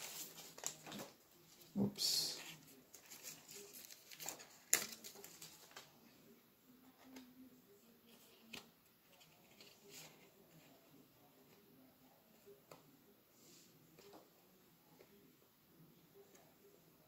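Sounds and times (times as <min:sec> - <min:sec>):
cards rustling and tapping: 0:02.6 - 0:06.0.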